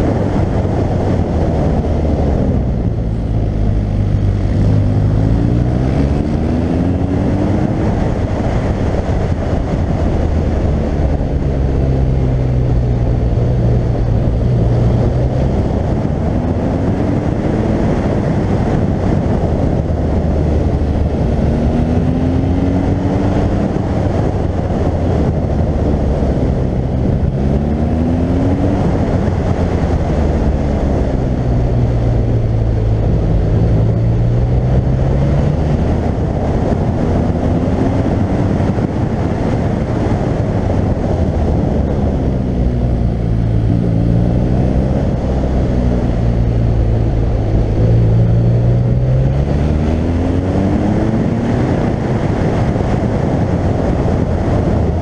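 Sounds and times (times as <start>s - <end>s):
motorcycle engine accelerating: 0.0s - 55.0s
wind noise: 0.0s - 55.0s.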